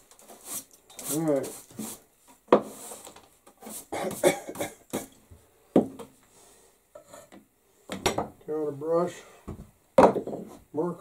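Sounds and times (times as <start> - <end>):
brush sweeping wooden bench: 0.2 - 4.4.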